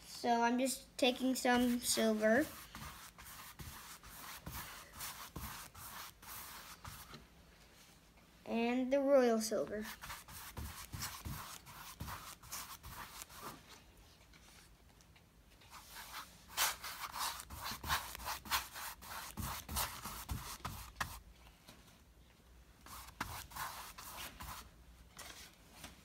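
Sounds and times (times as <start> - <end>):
paintbrush scratching on canvas: 1.4 - 7.2, 9.8 - 13.6, 15.7 - 21.2, 22.8 - 24.7.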